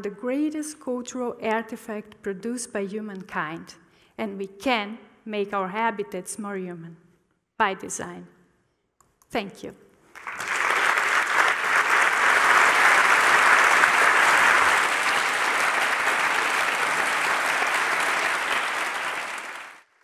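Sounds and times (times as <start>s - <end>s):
large audience applauding: 10.1s - 20.0s.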